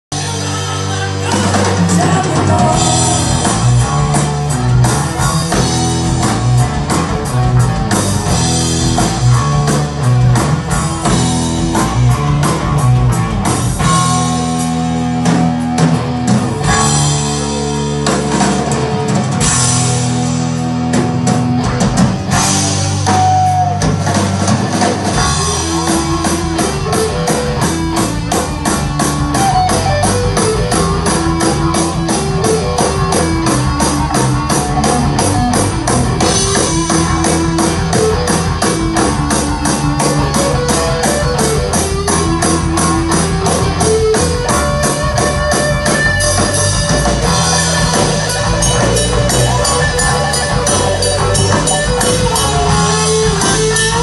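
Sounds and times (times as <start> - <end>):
drum kit beats: 0.1 - 54.0
electric guitars: 0.1 - 54.0.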